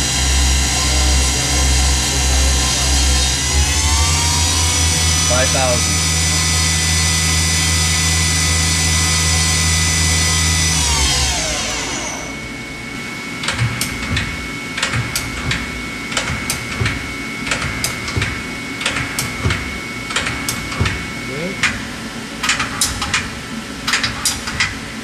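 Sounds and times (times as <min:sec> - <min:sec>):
lathe spindle whine: 0:00.0 - 0:17.8
steady high whine: 0:00.0 - 0:23.9.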